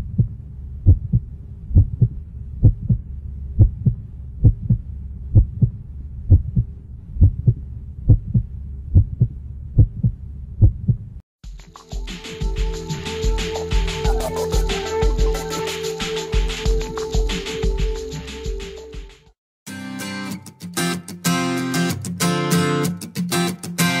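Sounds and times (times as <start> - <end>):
low hum: 0.0 - 11.2
heartbeat thumps: 0.0 - 15.6, 16.2 - 19.3.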